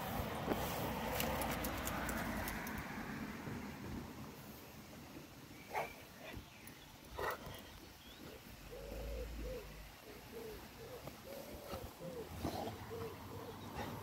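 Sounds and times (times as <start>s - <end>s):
soft low cooing calls: 7.2s - 14.0s.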